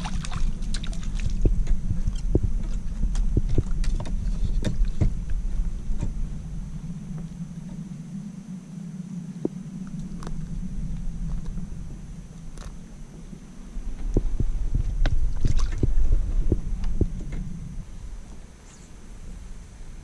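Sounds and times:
low rumble: 0:00.0 - 0:20.0
kayak knocks and clicks: 0:00.2 - 0:05.4.

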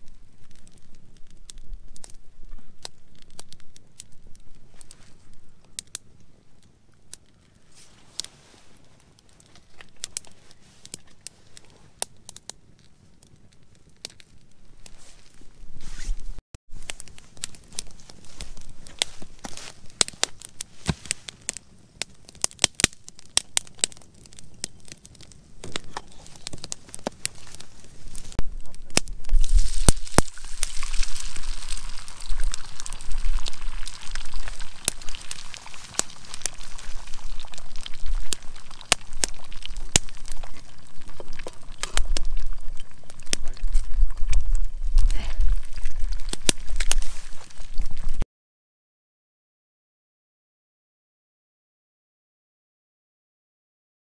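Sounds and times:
campfire crackling and popping: 0:00.0 - 0:48.2
egg sizzling in a pan: 0:29.2 - 0:48.2.

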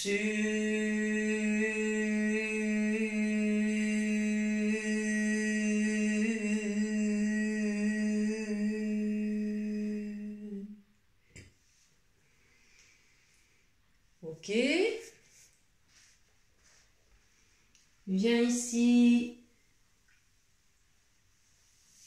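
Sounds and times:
woman holding long vocal note: 0:00.0 - 0:10.8.

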